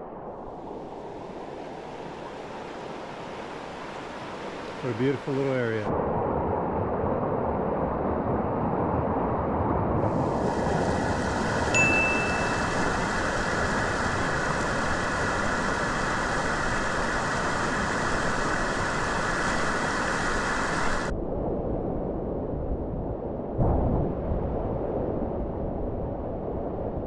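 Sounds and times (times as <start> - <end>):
waterfall rushing: 10.1 - 21.1
high bell-like ding: 11.8 - 13.0.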